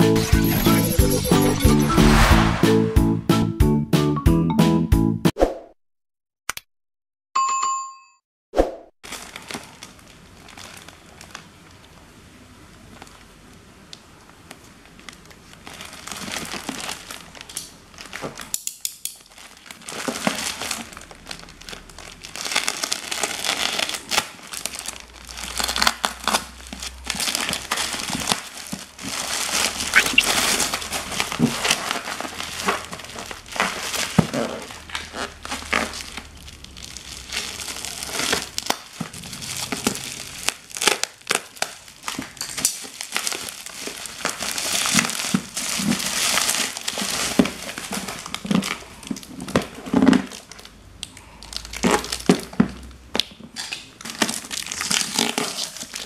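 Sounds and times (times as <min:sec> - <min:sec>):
plastic bag and bubble wrap crinkling: 0:09.0 - 0:12.0, 0:12.7 - 0:56.0.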